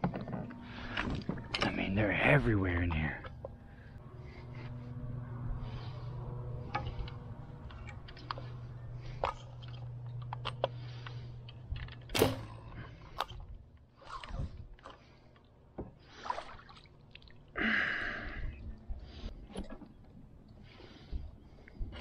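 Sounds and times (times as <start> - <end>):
bow shot crack: 12.1 - 12.8
arrow hitting water: 12.2 - 12.5
splashing water: 16.0 - 17.5.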